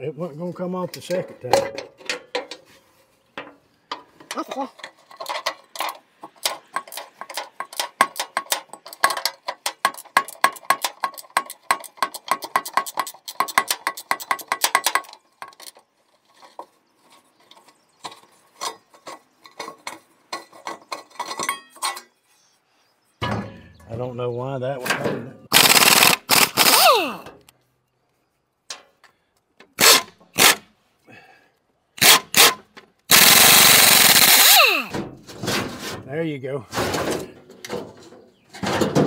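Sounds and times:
metal clicks and taps: 3.4 - 15.8
ratchet wrench clicking: 25.6 - 26.9, 33.1 - 34.8.

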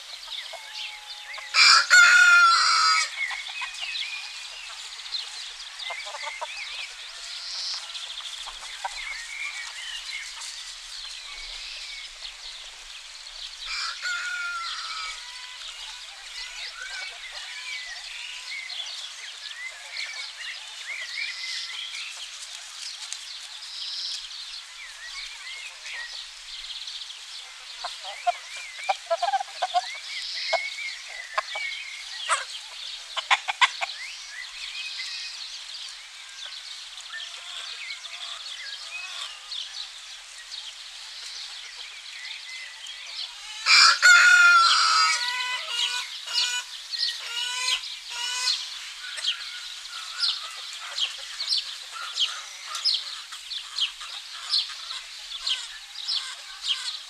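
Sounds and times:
chickens clucking: 0.0 - 23.2, 25.0 - 42.0, 42.7 - 57.0
rooster crowing loudly: 1.4 - 3.2, 13.7 - 15.4, 43.5 - 46.1
small birds chirping: 2.6 - 43.6, 44.6 - 57.0.

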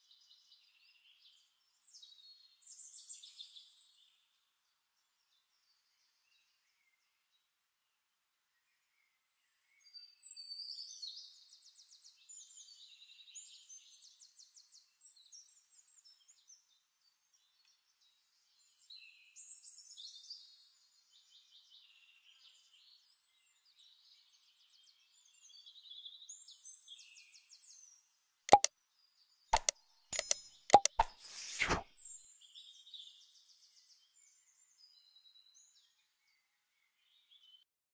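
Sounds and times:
faint birdsong chirps and trills: 0.0 - 29.6, 32.0 - 37.7
mouse-click sound effects: 29.6 - 31.8.

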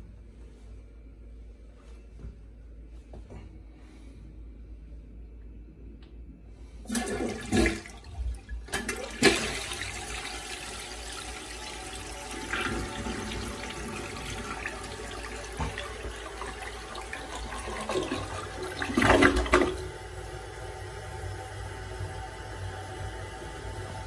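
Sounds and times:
toilet flushing: 6.8 - 24.0.

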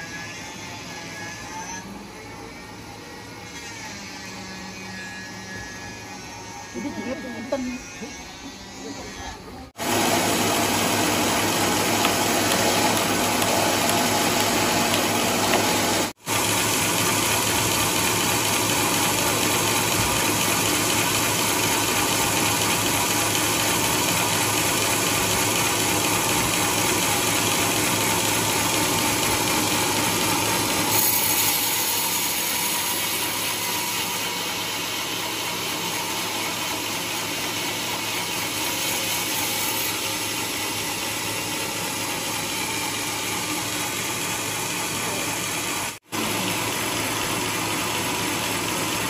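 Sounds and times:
sawmill band saw running: 0.0 - 49.0.

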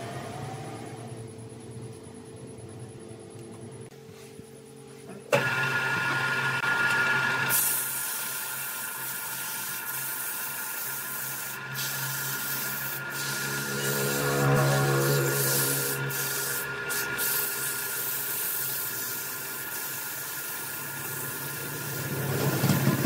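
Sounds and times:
lathe motor hum: 5.4 - 7.6, 9.8 - 18.0
sandpaper hissing on spinning wood: 7.5 - 23.0.

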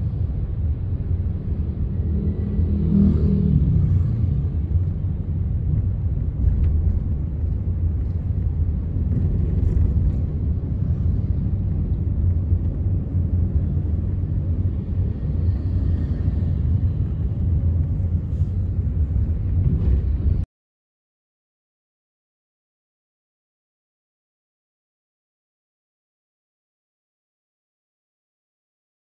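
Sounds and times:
car engine and road noise: 0.0 - 20.5.

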